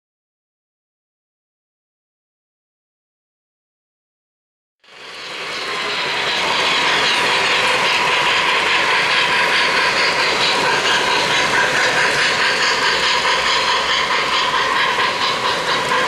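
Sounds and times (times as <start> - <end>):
model train running on track: 4.8 - 16.0.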